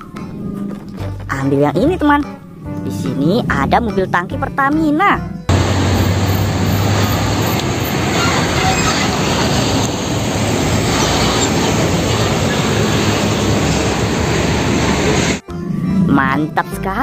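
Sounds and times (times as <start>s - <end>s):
truck engine and road noise: 5.4s - 16.2s
low hum: 5.5s - 16.1s.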